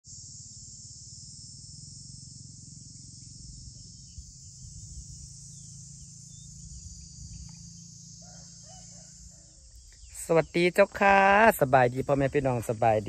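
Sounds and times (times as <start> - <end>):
insects chorus: 0.0 - 13.0
wind rumble on microphone: 3.5 - 5.7.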